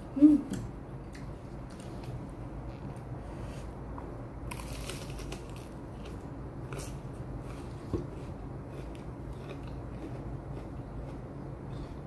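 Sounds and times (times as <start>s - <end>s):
steady low hum: 0.0s - 12.0s
crunchy bites and chewing: 4.5s - 12.0s.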